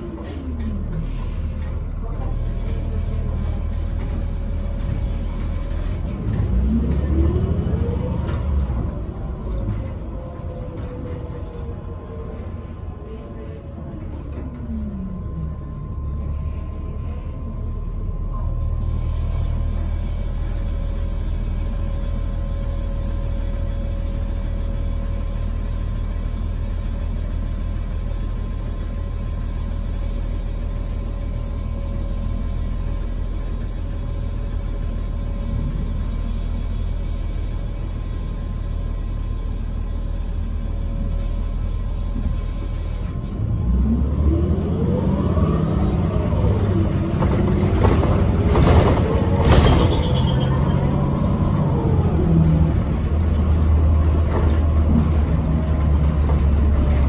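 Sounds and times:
bus engine accelerating through gears: 0.0 - 57.0
bus engine idling: 0.0 - 57.0.

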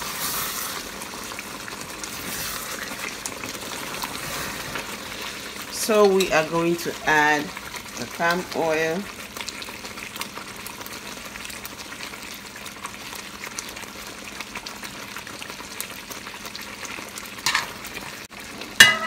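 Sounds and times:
wooden spoon stirring pot: 0.0 - 9.1
stew sizzling in a pot: 0.0 - 19.0.

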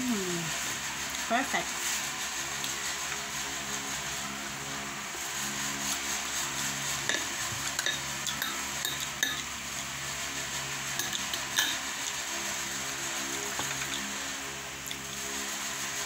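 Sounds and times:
steady background hum: 0.0 - 16.0
metal spoon clinking on dish: 7.1 - 9.4, 11.0 - 11.8.

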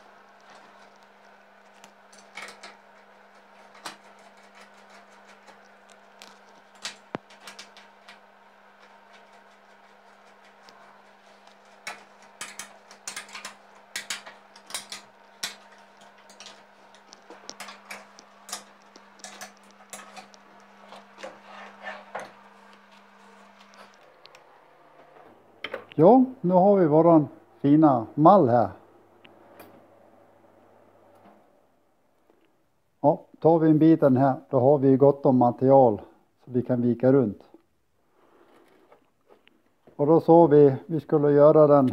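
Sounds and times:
steady low hum: 0.0 - 33.8.

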